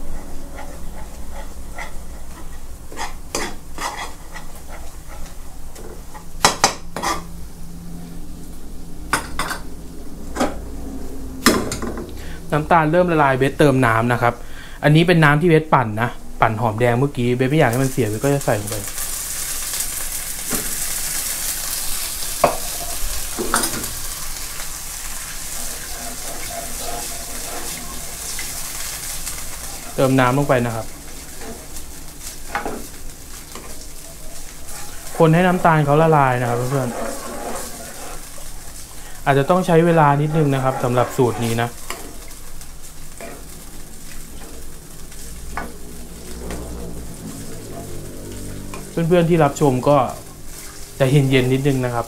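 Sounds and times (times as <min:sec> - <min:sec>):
metal spatula scraping a wok: 0:00.0 - 0:05.4, 0:07.0 - 0:07.3, 0:21.8 - 0:30.4, 0:31.1 - 0:42.4, 0:44.4 - 0:48.0
faint sizzle: 0:00.0 - 0:52.0.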